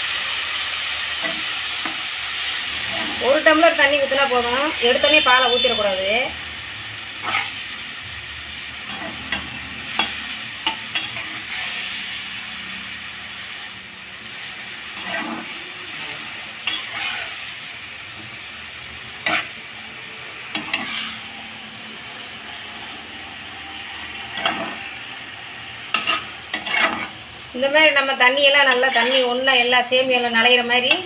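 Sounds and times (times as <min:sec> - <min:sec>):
noodles sizzling in a pan: 0:00.0 - 0:31.0
spatula scraping a pan: 0:01.1 - 0:03.6, 0:07.2 - 0:07.7, 0:08.8 - 0:12.0, 0:14.4 - 0:17.4, 0:19.1 - 0:19.6, 0:20.5 - 0:21.4, 0:24.1 - 0:25.0, 0:25.9 - 0:27.3, 0:28.5 - 0:29.6.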